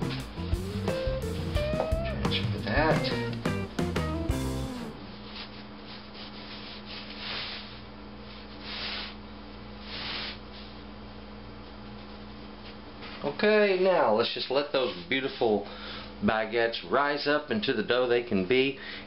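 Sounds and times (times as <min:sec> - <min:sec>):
steady low hum: 0:00.0 - 0:19.0
dough swishes: 0:05.0 - 0:13.3
hands rubbing dough on baking sheet: 0:05.1 - 0:13.2.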